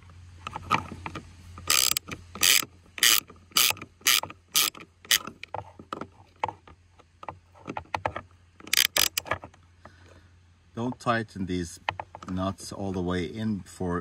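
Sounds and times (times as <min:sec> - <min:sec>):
hand ratchet clicking: 0:01.6 - 0:05.5, 0:08.6 - 0:09.3.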